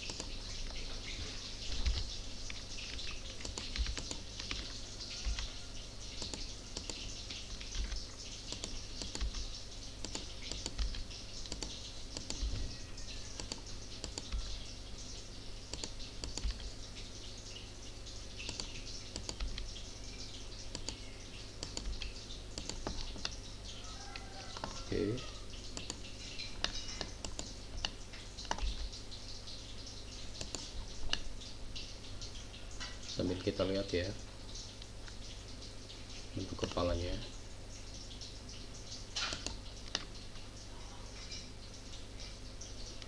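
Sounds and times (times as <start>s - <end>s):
keyboard and mouse clicking: 0.0s - 0.9s, 1.7s - 5.5s, 6.1s - 14.7s, 15.7s - 16.7s, 18.4s - 19.8s, 20.6s - 21.0s, 21.6s - 23.4s, 24.5s - 24.9s, 25.7s - 28.9s, 30.4s - 31.2s, 39.2s - 40.1s
low hum and hiss: 0.0s - 43.0s.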